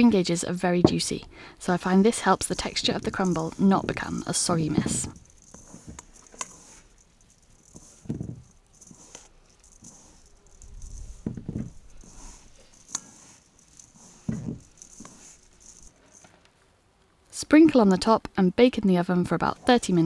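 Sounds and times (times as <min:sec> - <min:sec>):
crumbs rattling in mixing bowl: 0:01.8 - 0:16.2.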